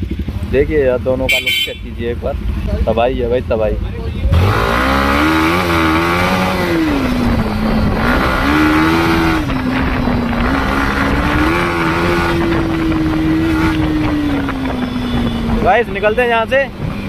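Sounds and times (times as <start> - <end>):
motorcycle engine running: 0.0 - 17.0
wind noise on microphone: 4.8 - 17.0.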